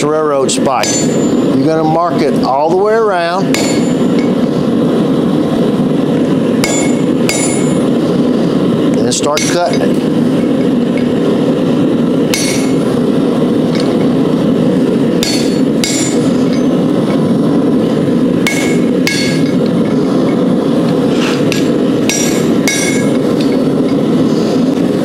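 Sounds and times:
loud steady rushing noise: 0.0s - 25.0s
hammer striking hot metal: 0.6s - 1.8s, 3.3s - 4.5s, 6.5s - 8.0s, 9.0s - 11.3s, 12.2s - 25.0s.

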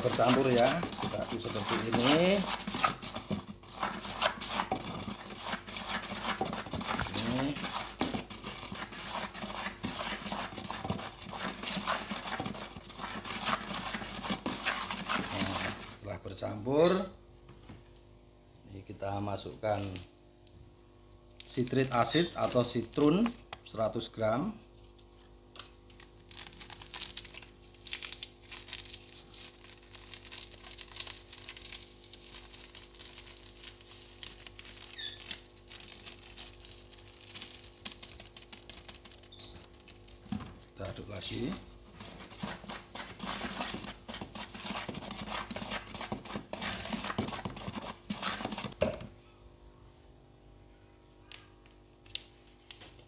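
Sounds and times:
stick scraping in plastic bucket: 0.0s - 16.0s, 39.0s - 48.8s
plastic bag crinkling: 21.4s - 23.5s, 25.9s - 44.0s.

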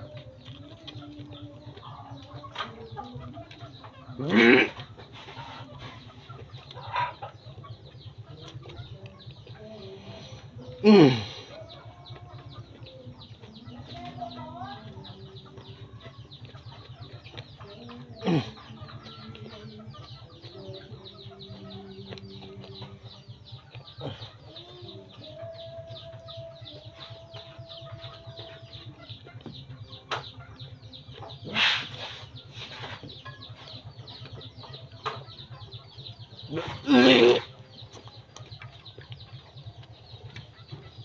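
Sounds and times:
man chewing: 0.0s - 2.3s
chickens clucking: 0.0s - 41.0s
low pulsing hum: 0.0s - 41.0s.

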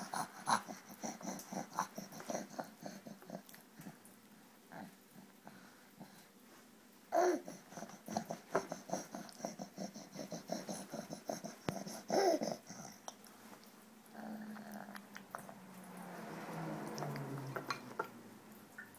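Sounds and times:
baby grunting and babbling: 0.0s - 3.5s, 7.1s - 13.1s.

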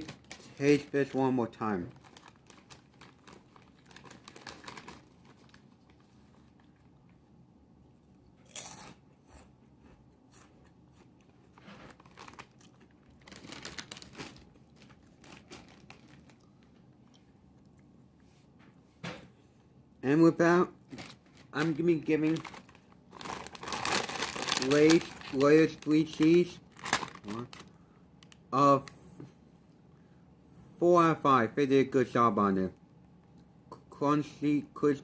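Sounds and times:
person crunching chips: 1.9s - 5.7s, 8.4s - 9.0s, 11.9s - 16.6s, 20.8s - 28.4s.

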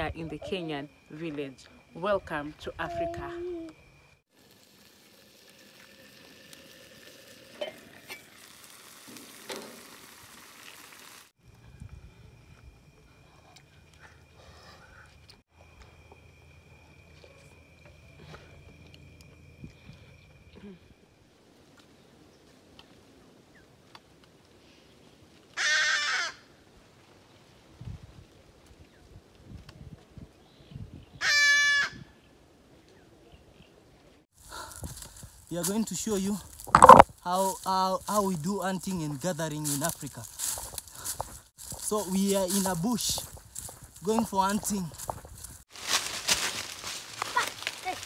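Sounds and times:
meat and potatoes sizzling in a pan: 4.3s - 11.3s
harsh rasping animal call: 31.2s - 32.0s.

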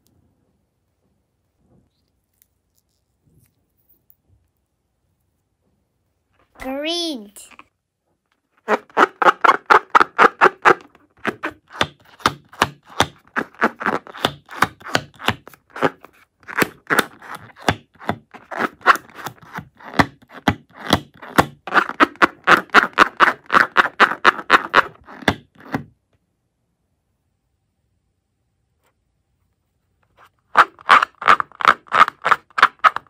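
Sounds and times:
rubber balloon squeaking: 8.6s - 25.8s, 30.5s - 33.0s.

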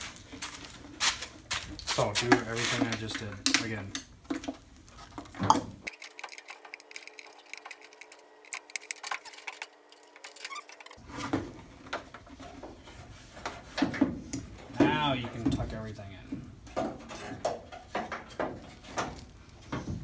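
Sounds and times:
plastic connectors clicking and rattling: 5.9s - 11.0s.

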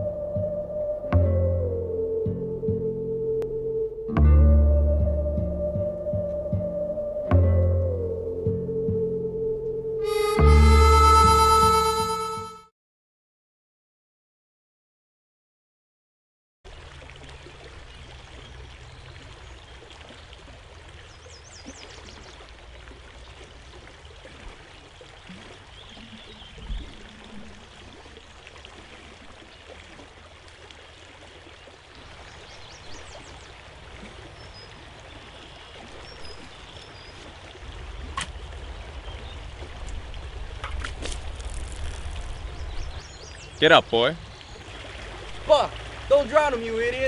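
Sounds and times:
short high chirps: 10.0s - 12.6s
stream of water running: 16.7s - 47.0s.

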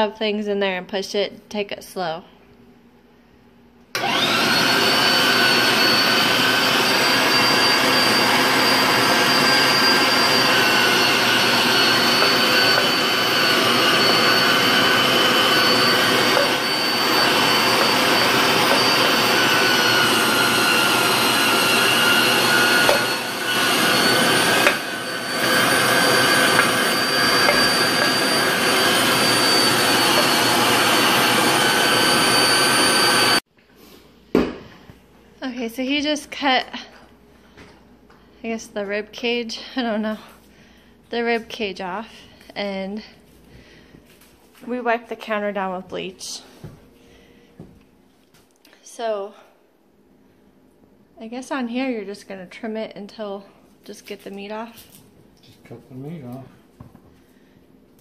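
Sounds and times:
electric meat grinder motor whine: 4.0s - 33.4s.

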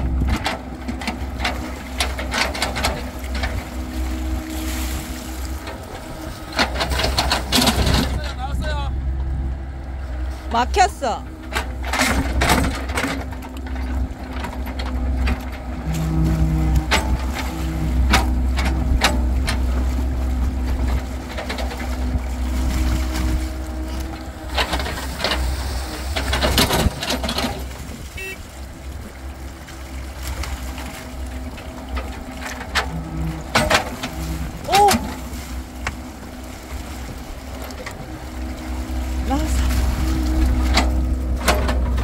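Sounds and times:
excavator diesel engine running: 0.0s - 42.0s
hydraulic hum: 0.0s - 42.0s
bucket knocking and scraping: 30.0s - 36.4s.

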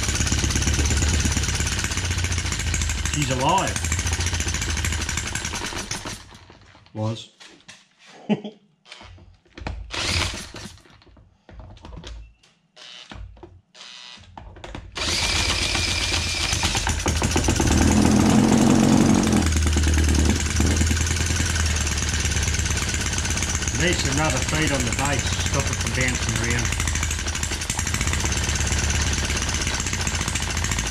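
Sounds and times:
small engine running: 0.0s - 6.6s, 9.9s - 10.8s, 15.0s - 30.9s
cordless drill whirring: 9.8s - 10.8s, 12.8s - 14.4s, 15.0s - 19.4s.

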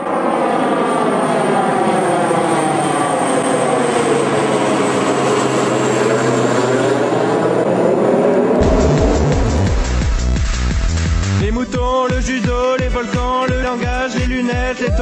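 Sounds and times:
aircraft engine drone: 0.0s - 11.5s.

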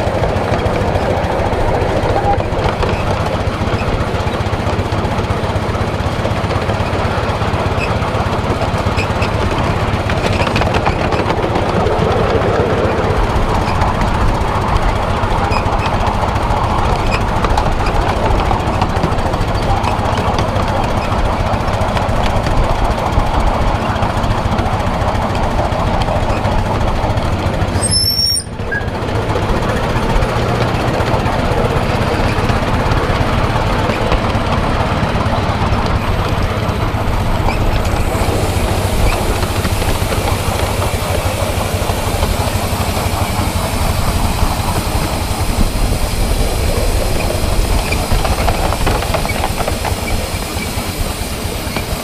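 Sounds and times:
miniature steam locomotive clattering: 0.0s - 52.0s
hiss of steam: 34.8s - 52.0s.

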